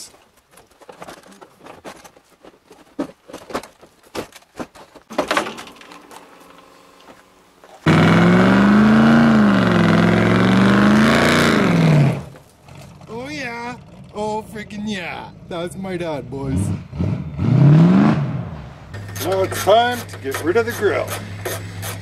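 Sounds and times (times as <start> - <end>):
car engine revving hard: 7.8 - 12.3, 16.5 - 19.1.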